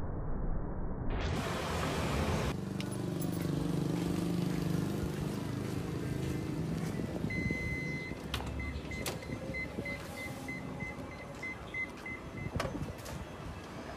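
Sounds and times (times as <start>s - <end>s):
warning beeps: 7.0s - 12.8s.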